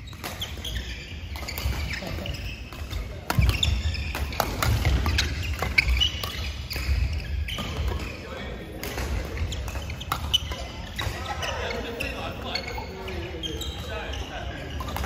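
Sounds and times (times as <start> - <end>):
rackets striking shuttlecock: 0.0 - 11.4, 14.6 - 15.0
court shoes squeaking: 0.0 - 15.0.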